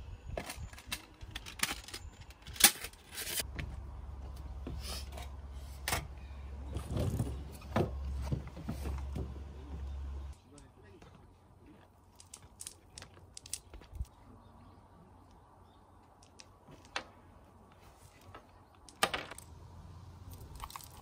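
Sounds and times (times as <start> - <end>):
camping gear handled on wooden deck: 0.2 - 10.3, 11.0 - 14.2, 16.0 - 19.4.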